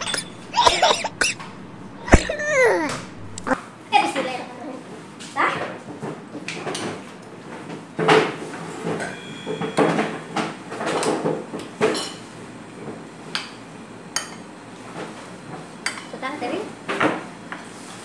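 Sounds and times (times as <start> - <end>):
dishes and cutlery clinking: 0.0 - 3.6, 8.9 - 12.3.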